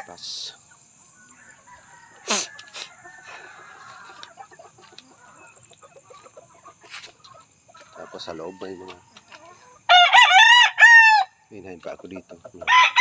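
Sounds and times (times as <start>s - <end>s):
chickens clucking: 0.0s - 9.9s, 11.5s - 13.0s
loud falling chicken call: 9.9s - 11.3s.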